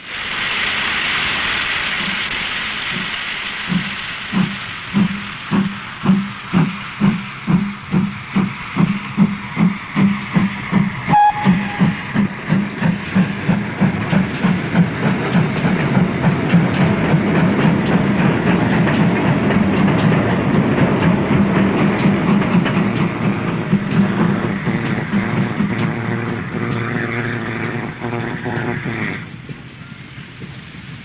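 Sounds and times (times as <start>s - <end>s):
steam locomotive exhaust beats: 0.0s - 31.0s
steam whistle: 11.1s - 12.3s.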